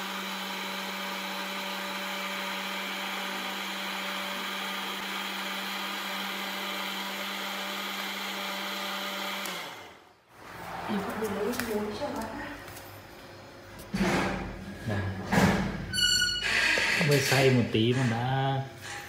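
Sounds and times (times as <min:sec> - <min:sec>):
blender running: 0:00.0 - 0:10.1.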